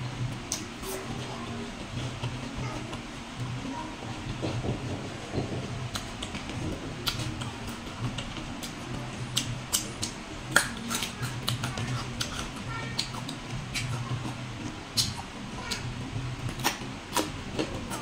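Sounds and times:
crunching and chewing fruit: 5.9 - 15.9.

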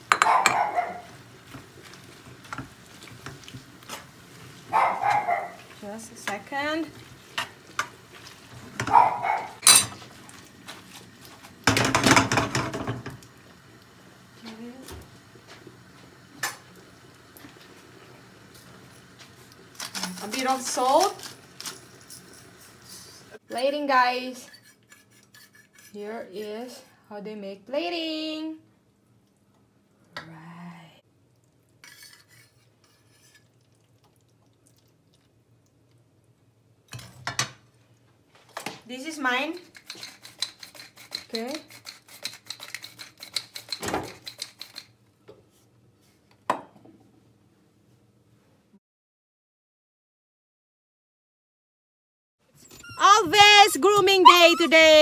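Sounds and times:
fork scraping frying pan: 24.3 - 26.9, 31.8 - 33.6, 39.6 - 44.9
short squeak: 52.6 - 53.1.

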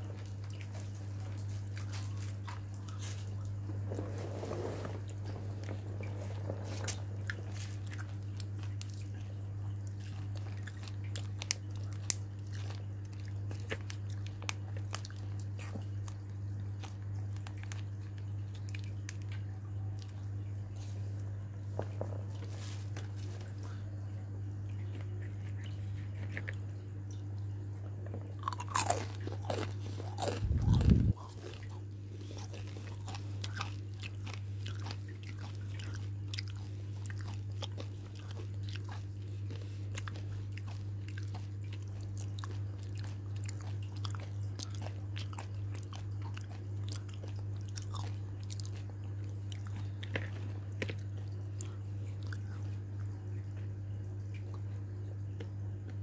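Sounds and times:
low hum: 0.0 - 10.1, 19.2 - 32.4
crunchy chewing of fried food: 0.0 - 56.0.

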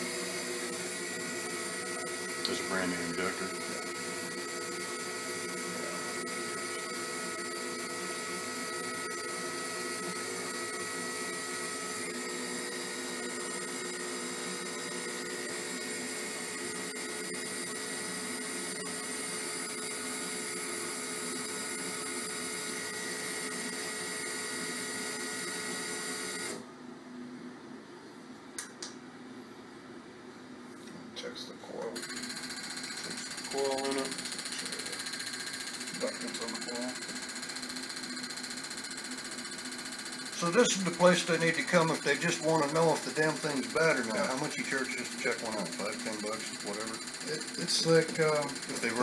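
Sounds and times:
machine electric whine: 0.0 - 26.7, 31.8 - 49.0
sharp click: 28.6 - 29.0.

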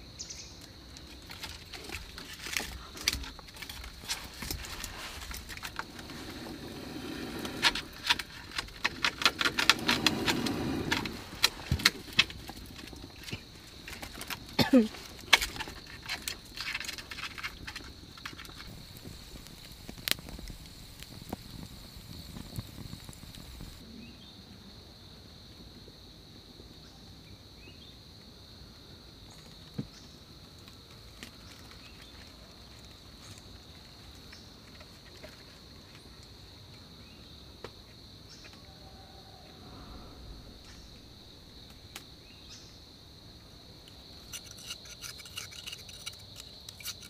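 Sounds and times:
fire crackling: 0.6 - 23.9, 39.5 - 47.0.

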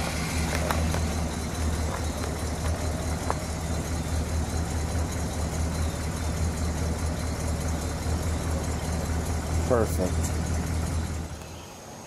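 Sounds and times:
car engine idling: 0.0 - 12.0.

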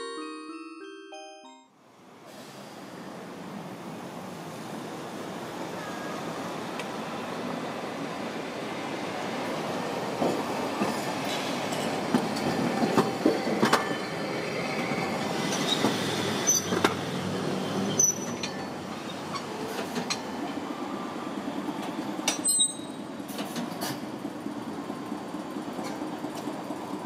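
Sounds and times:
high-pitched wheel squeals: 15.5 - 16.9, 17.8 - 18.7, 22.3 - 23.1.

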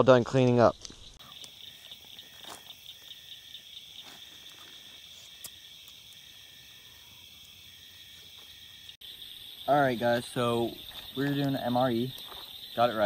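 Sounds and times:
night insects chirring: 0.0 - 13.0.

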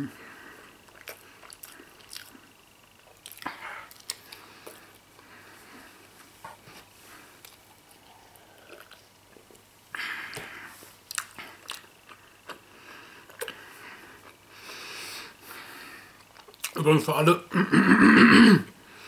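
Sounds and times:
person chewing cheese: 0.8 - 5.3, 7.2 - 9.6, 11.0 - 14.8, 16.0 - 16.8.

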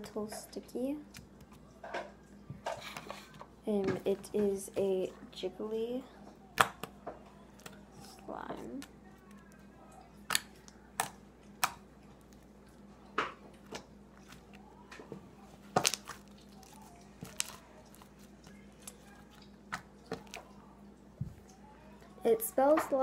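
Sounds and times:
slime clicking and popping: 10.3 - 12.4, 15.7 - 20.4.

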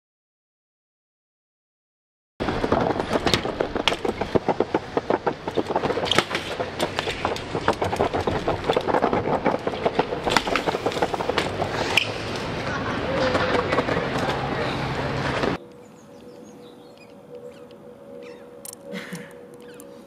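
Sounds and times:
bike clattering on stone: 2.4 - 14.6
wheels knocking on ledge: 2.4 - 15.6.

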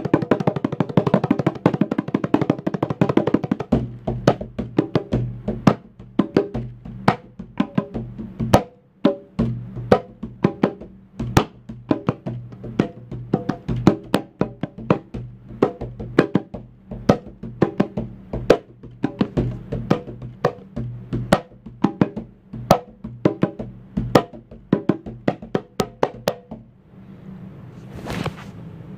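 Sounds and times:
hand drums: 0.0 - 26.8
soft rustle: 27.6 - 28.8.

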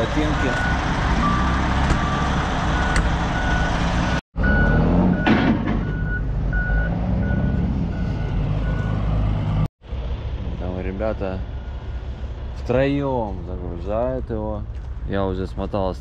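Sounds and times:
forklift engines running: 0.0 - 12.7
forklift reversing alarms beeping: 0.2 - 9.2.

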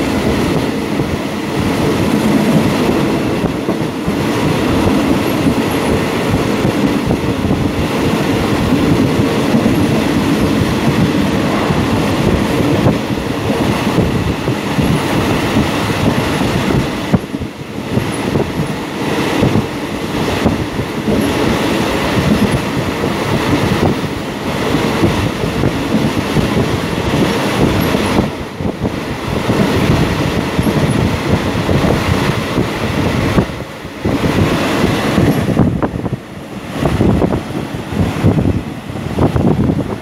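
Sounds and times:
train wheels rumbling on rails: 0.0 - 40.0.

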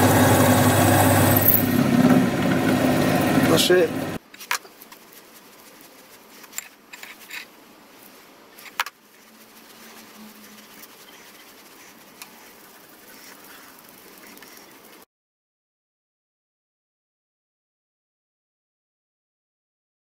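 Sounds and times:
low steady hiss: 3.7 - 15.0.

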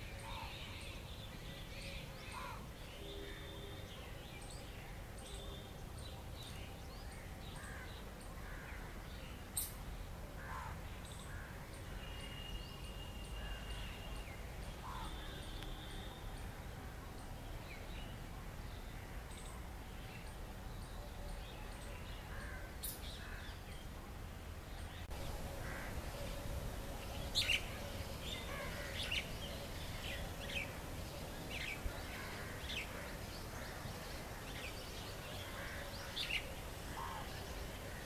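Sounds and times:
bird calls: 25.0 - 38.0.

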